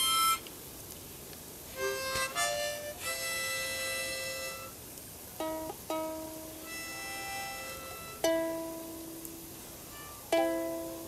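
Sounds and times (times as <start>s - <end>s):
harmonica chords: 0.0s - 0.4s, 1.8s - 4.8s, 5.4s - 9.0s, 9.9s - 11.0s.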